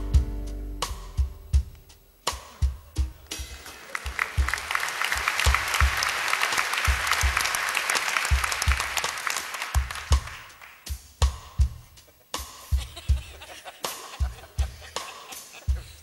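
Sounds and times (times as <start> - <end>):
bass drum thumps: 0.0 - 2.0
audience applauding: 3.3 - 10.9.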